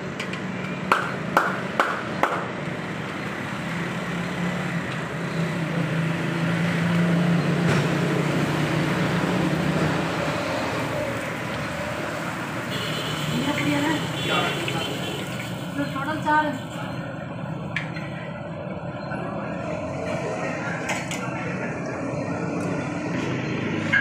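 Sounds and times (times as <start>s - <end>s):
oil frying hiss: 14.4s - 16.3s.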